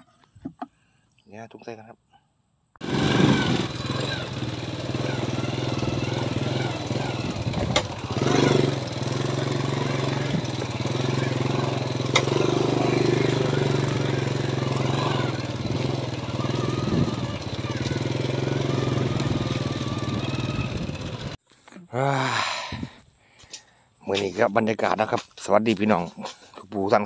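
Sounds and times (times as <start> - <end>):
motorcycle engine running: 2.8 - 21.4
wind and road noise: 2.8 - 21.4.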